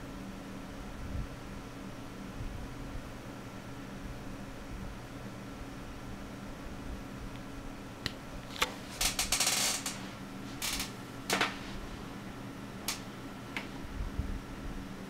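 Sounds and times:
computer fans humming: 0.0s - 15.0s
sharp clicks on computer case: 10.6s - 11.6s.

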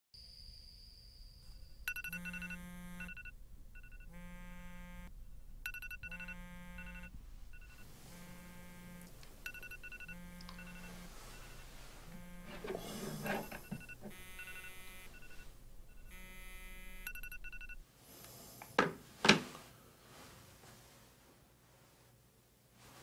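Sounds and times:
phone ringtone: 1.8s - 17.8s.

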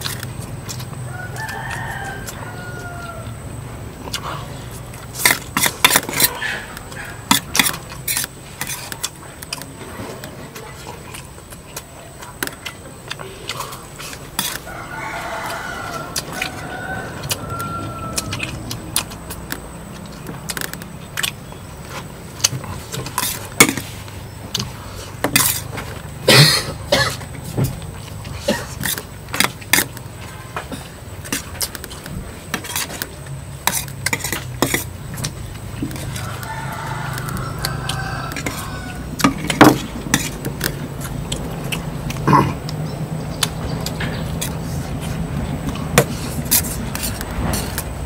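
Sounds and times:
rooster crowing: 0.9s - 4.6s, 14.4s - 20.3s, 35.4s - 41.6s.

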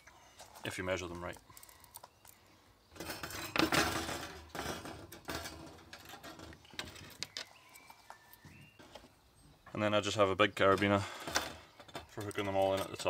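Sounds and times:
wire rack rattling on board: 3.0s - 7.4s, 10.6s - 13.0s.

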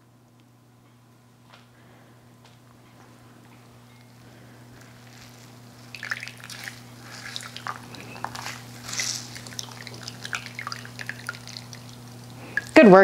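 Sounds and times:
juice dripping into bowl: 4.0s - 12.8s
wet cloth squelches: 4.8s - 12.8s.

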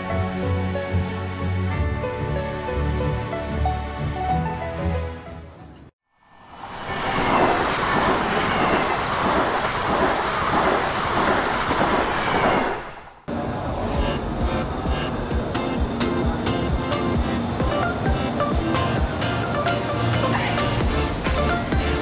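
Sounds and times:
music: 0.0s - 5.9s, 13.8s - 22.0s.

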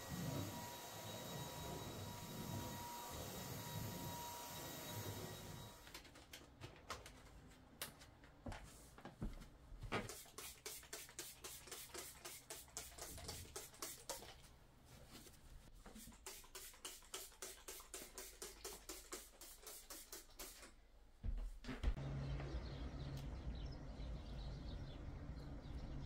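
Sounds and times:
spray bottle spraying: 10.1s - 14.4s, 16.0s - 20.8s.

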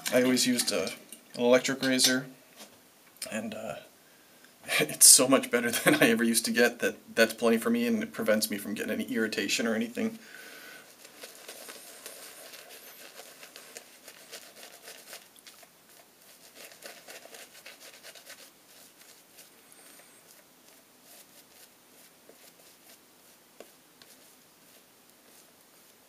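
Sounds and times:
shaving brush scrubbing face: 10.9s - 26.0s.

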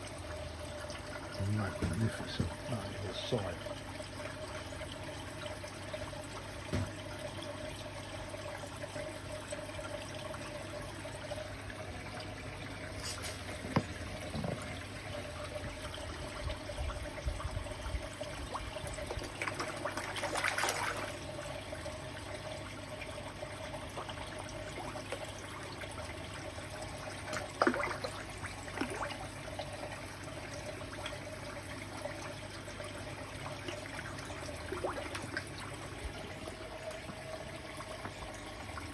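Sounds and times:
faint steady hum: 0.0s - 38.9s
water trickling into a pond: 0.0s - 38.9s
fish splashing at the surface: 18.5s - 21.3s, 27.2s - 29.3s.

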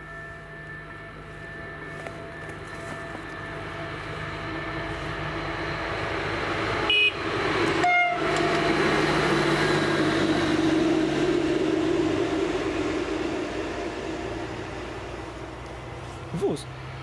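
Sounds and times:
train running noise: 0.0s - 17.0s
train horn blasts: 6.8s - 8.8s.

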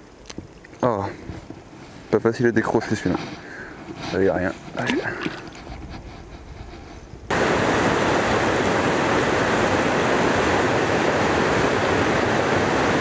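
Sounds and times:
water rushing over weir: 7.3s - 13.0s.

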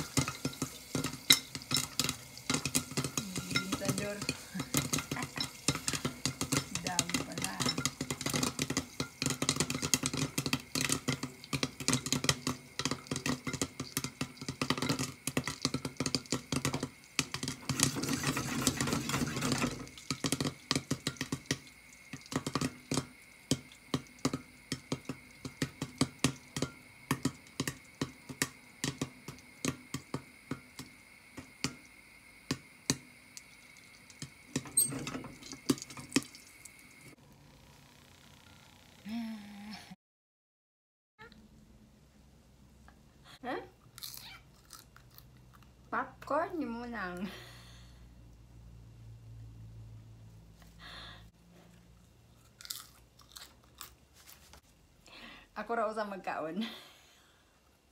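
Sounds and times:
popcorn popping in a pan: 0.0s - 37.4s.

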